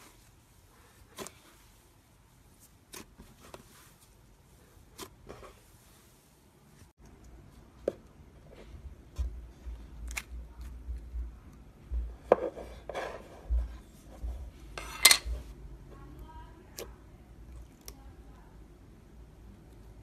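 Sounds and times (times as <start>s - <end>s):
slime squishing by hand: 0.0s - 14.7s.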